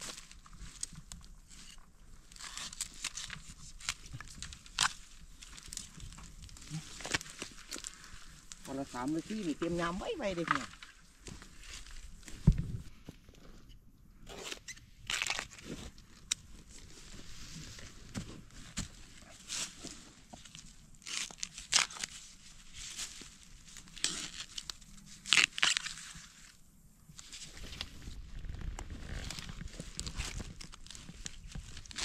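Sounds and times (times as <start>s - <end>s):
dry bamboo leaves rustling: 0.0s - 12.6s, 15.1s - 32.0s
bamboo snapping: 0.1s - 8.7s, 14.5s - 15.6s, 20.4s - 22.2s, 23.8s - 26.2s.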